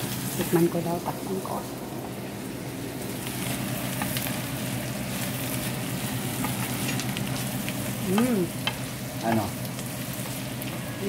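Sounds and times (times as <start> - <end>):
meat sizzling in a pan: 0.0 - 1.8, 2.4 - 11.0.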